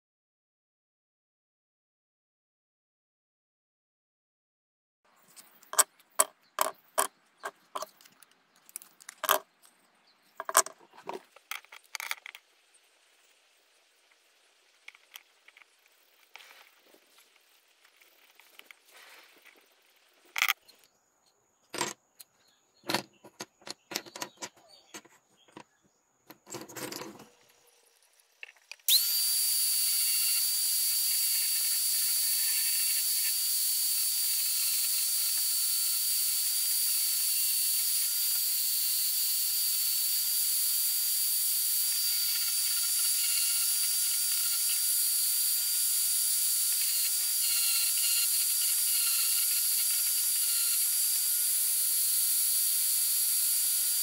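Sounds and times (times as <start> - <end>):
angle grinder grinding wood: 28.8 - 54.0.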